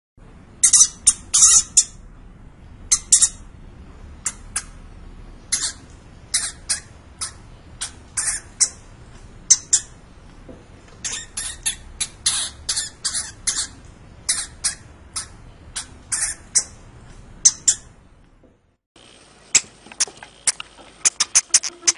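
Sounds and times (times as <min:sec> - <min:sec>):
hamster squeaking: 0:00.6 - 0:02.0, 0:05.5 - 0:08.9, 0:09.5 - 0:10.0, 0:11.0 - 0:18.0, 0:19.5 - 0:21.9.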